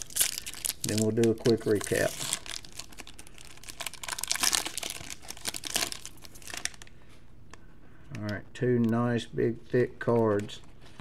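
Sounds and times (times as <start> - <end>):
foil wrapper crinkling: 0.0 - 6.9.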